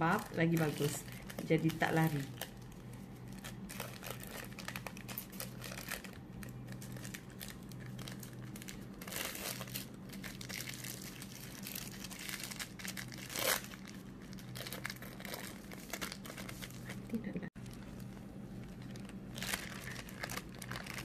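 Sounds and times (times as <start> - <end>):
baking paper crinkling: 0.0 - 21.0.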